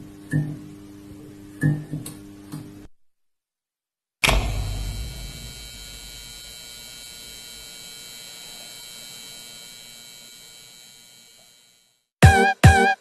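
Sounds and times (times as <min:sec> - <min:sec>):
steady electrical hum: 0:04.2 - 0:11.8.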